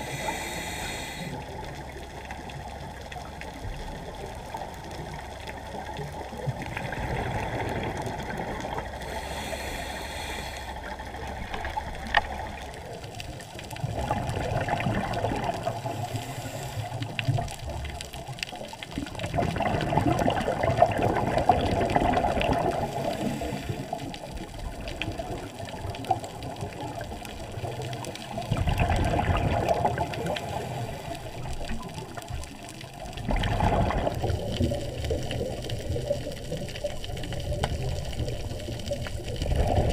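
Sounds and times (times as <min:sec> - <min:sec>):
diver breathing through regulator: 0:00.0 - 0:01.5, 0:09.0 - 0:11.0, 0:15.8 - 0:17.2, 0:22.8 - 0:24.0, 0:30.2 - 0:31.6
rush of exhaled bubbles: 0:05.0 - 0:10.1, 0:10.8 - 0:39.9
faint clicks: 0:10.6 - 0:14.4, 0:33.9 - 0:39.9.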